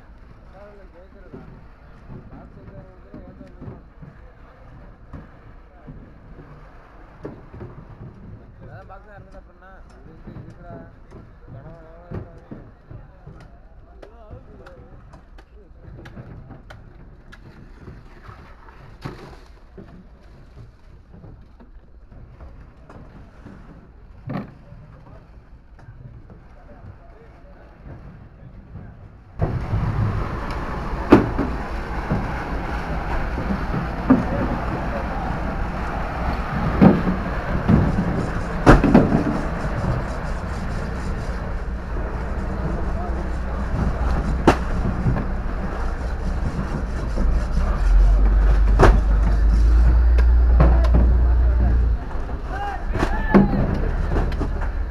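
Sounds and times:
low rumble: 29.4s - 54.9s
sharp knocks: 29.4s - 54.9s
wind buffeting microphone: 29.4s - 54.9s.

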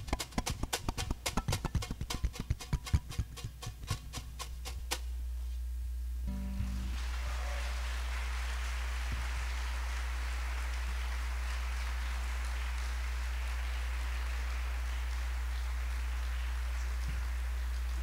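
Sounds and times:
low hum: 0.0s - 18.0s
audience applauding: 6.7s - 18.0s.

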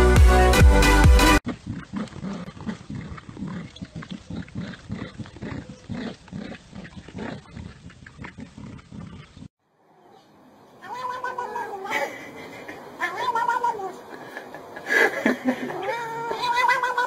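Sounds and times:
loud music: 0.0s - 1.4s
dogs play-growling: 1.5s - 9.5s.

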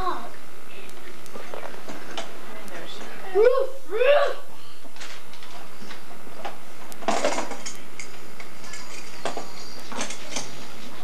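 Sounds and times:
hard objects clattering: 5.0s - 11.0s.

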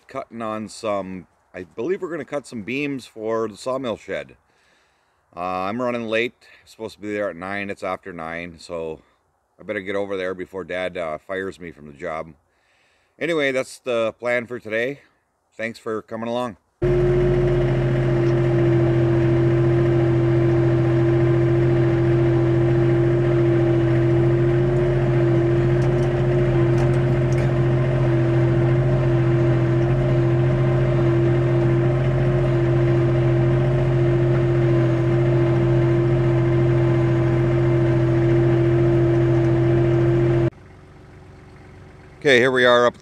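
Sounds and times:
tractor engine running: 16.8s - 43.0s.

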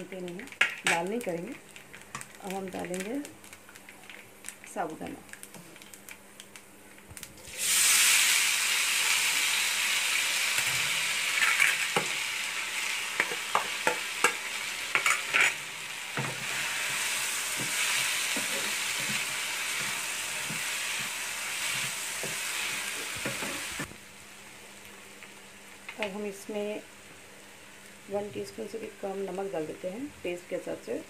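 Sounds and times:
sizzling in hot oil: 7.4s - 29.7s.

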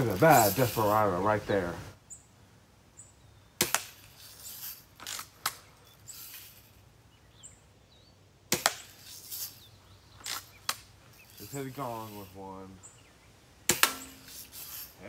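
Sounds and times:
pellets hitting targets: 0.0s - 1.0s, 3.6s - 6.6s, 8.5s - 9.6s, 13.6s - 15.0s
bb gun shots: 8.5s - 9.0s, 13.7s - 14.2s.

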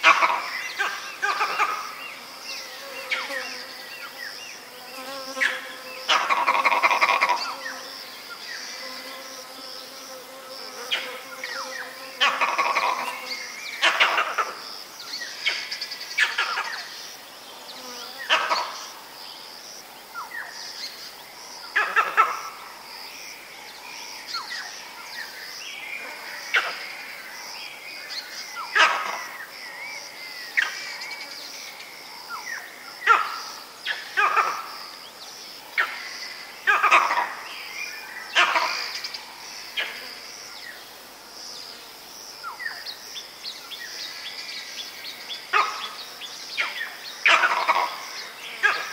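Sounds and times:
monkey alarm barks: 21.8s - 22.5s, 33.0s - 33.4s, 34.0s - 34.7s, 36.7s - 37.4s, 45.5s - 46.0s, 47.3s - 48.0s.

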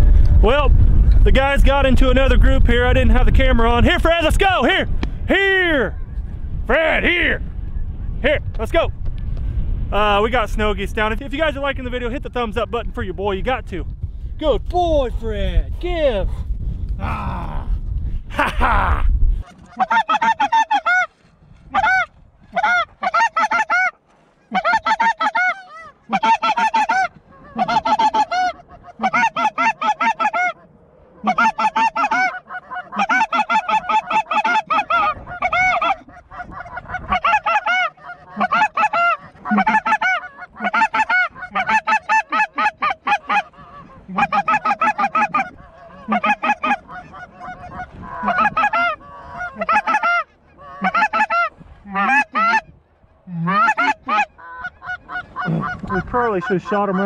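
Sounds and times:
snow geese honking: 19.4s - 52.7s, 53.4s - 57.0s.

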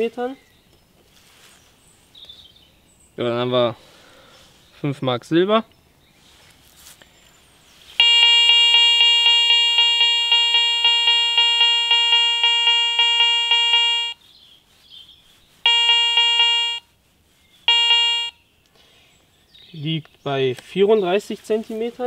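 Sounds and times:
metal detector buzzy beep: 8.0s - 14.2s, 15.6s - 16.9s, 17.7s - 18.4s.

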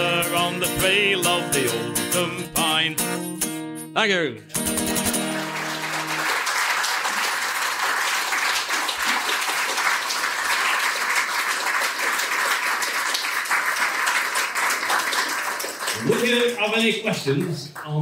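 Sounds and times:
acoustic guitar chord ringing: 0.0s - 6.2s
audience applauding: 4.7s - 18.0s.

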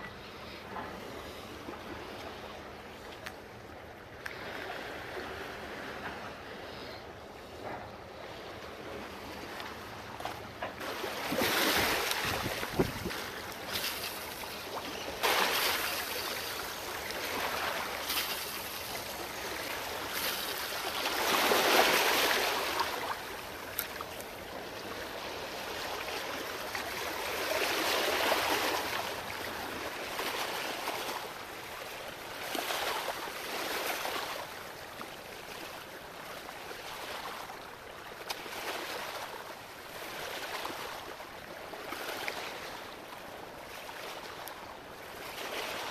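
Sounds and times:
waves lapping against rocks: 4.1s - 6.7s, 7.4s - 45.9s.

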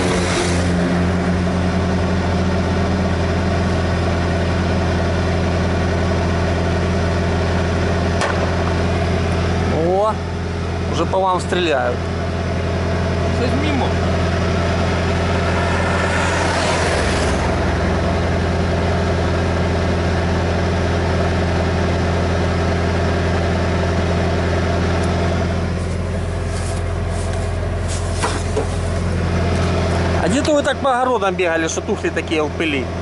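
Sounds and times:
diesel engine idling: 0.0s - 33.0s
rush of noise: 13.7s - 19.7s.

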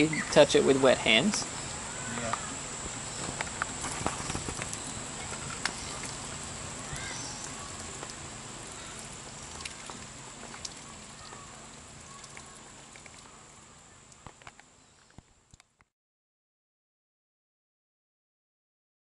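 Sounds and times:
rainwater dripping: 3.3s - 15.8s.

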